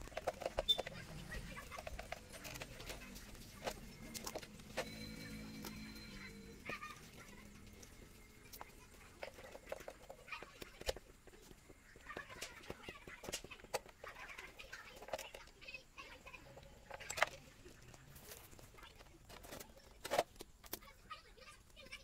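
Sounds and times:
hand tools clicking and tapping: 0:00.0 - 0:15.6.

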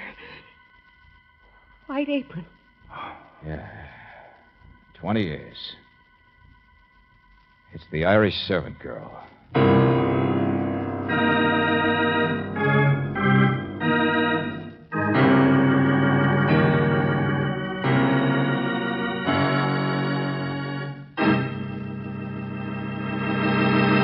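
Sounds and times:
dramatic organ chords: 0:07.8 - 0:24.0.

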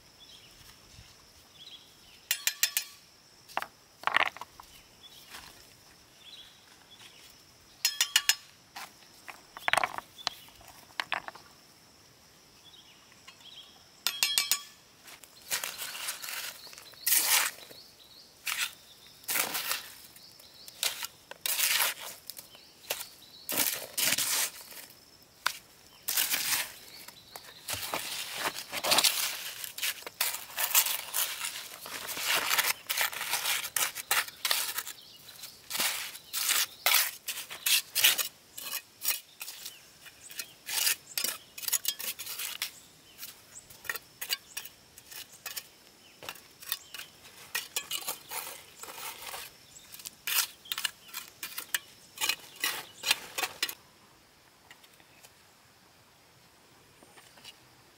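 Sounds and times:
trowel scraping mortar on stone: 0:15.5 - 0:17.8, 0:20.7 - 0:22.2, 0:27.7 - 0:53.8.

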